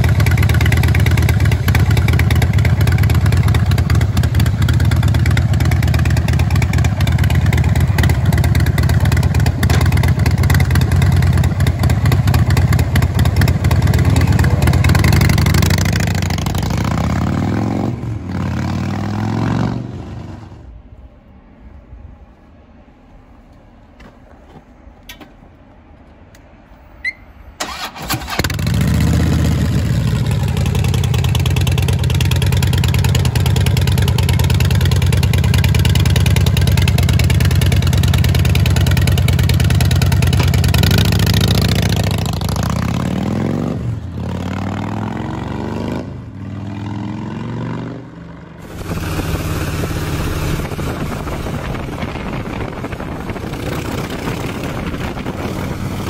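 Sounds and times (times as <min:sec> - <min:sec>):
motorcycle engine starting: 0:00.0 - 0:20.5, 0:27.1 - 0:46.0, 0:48.6 - 0:56.0
motorcycle engine revving: 0:00.0 - 0:20.7, 0:27.6 - 0:56.0
motorcycle riding at speed: 0:00.0 - 0:20.8, 0:27.1 - 0:56.0.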